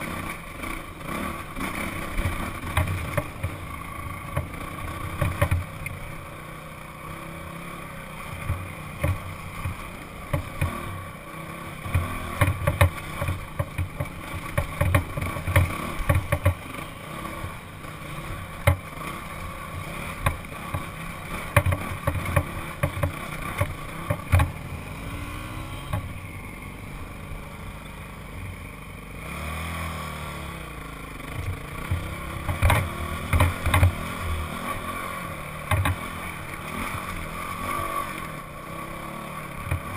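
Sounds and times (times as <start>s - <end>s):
dirt bike engine running: 0.0s - 39.9s
knocks and thumps on rock: 5.2s - 5.7s, 8.5s - 10.8s, 11.9s - 16.6s, 18.6s - 18.9s, 21.5s - 24.6s, 31.4s - 34.0s, 35.7s - 36.1s.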